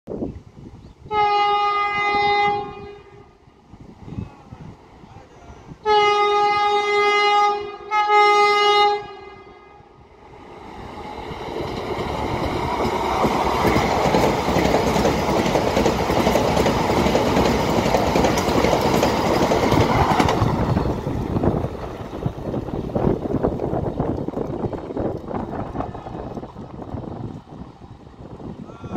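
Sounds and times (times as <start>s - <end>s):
train horn blasts: 1.1s - 3.4s, 5.8s - 10.0s
train rushing past: 1.7s - 28.9s.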